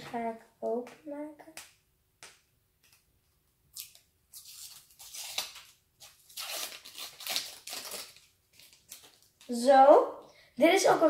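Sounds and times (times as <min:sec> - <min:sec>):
plastic packaging tearing: 0:03.8 - 0:09.5.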